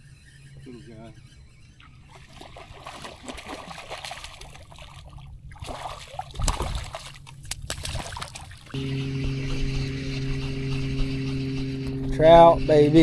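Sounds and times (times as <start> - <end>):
fish splashing at water surface: 2.1 - 8.8.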